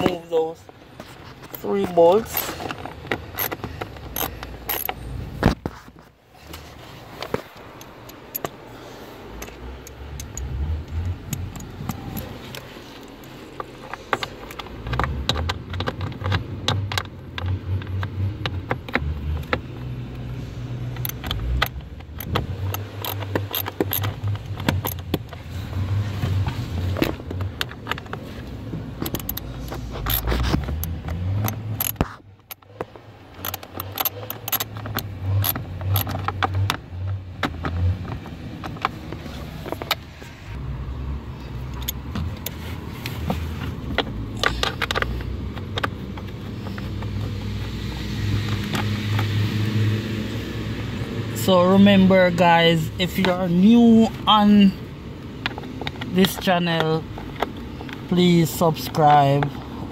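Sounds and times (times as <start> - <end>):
ratchet clicking: 2.3 - 5.0, 9.3 - 25.5, 28.9 - 36.8.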